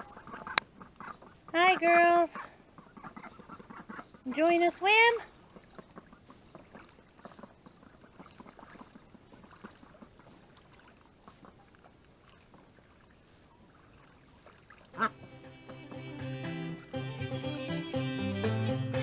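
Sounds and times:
ducks splashing in water: 0.0 - 18.0
music: 15.0 - 19.0.

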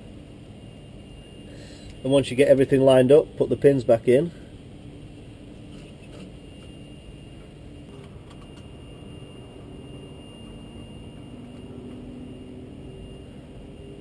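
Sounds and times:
vehicle engine humming: 8.9 - 14.0.

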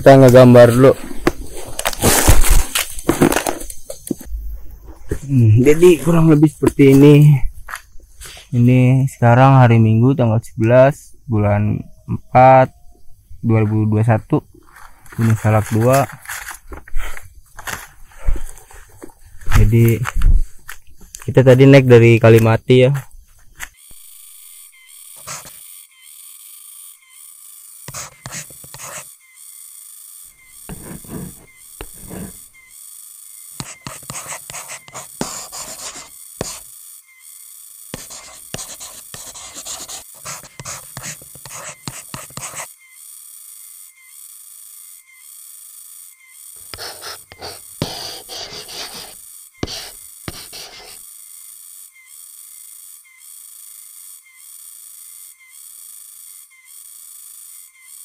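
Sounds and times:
crickets and forest insects: 0.0 - 58.0
repeating insect chirp: 0.0 - 58.0
paper rustling: 0.6 - 4.2, 14.7 - 21.3
pen scratching on paper: 25.1 - 25.6, 27.9 - 29.1, 30.6 - 32.5, 33.6 - 36.7, 37.9 - 42.8, 46.7 - 51.0.

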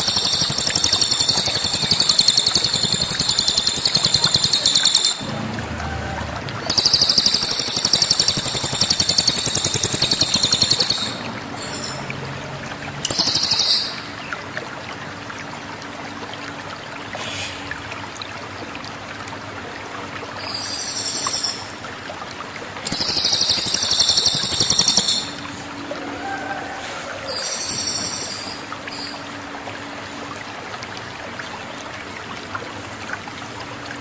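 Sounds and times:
songbird high rapid trills: 6.7 - 12.0, 22.9 - 25.5.

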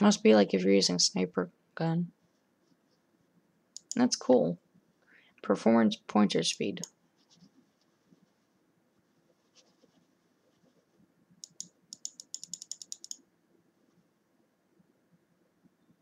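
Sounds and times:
mouse buttons clicking: 3.8 - 4.1, 11.4 - 13.2.

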